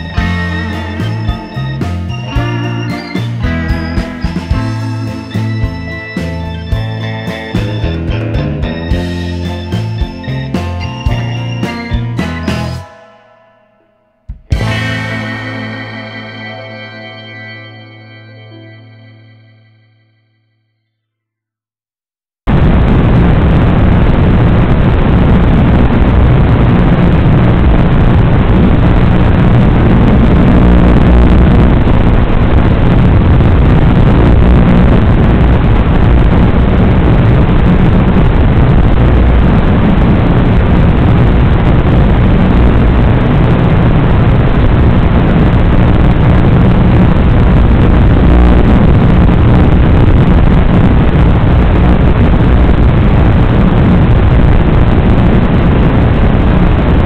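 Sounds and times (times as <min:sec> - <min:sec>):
loud even rushing noise: 0:22.5 - 0:57.0.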